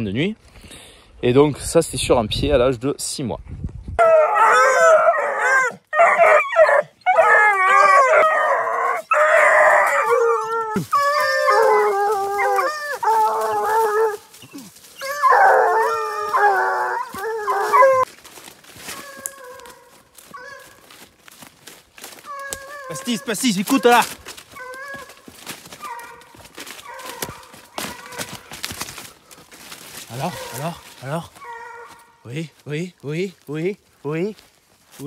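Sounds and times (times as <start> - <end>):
hound puppies howling and yelping: 4.0 - 18.1, 18.7 - 32.2
hounds baying: 4.0 - 18.1, 18.7 - 21.1, 22.0 - 32.2.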